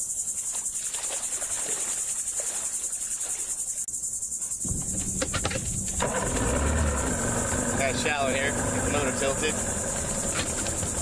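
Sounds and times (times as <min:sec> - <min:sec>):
insects chirring: 0:00.0 - 0:11.0
outboard motor idling: 0:04.6 - 0:11.0.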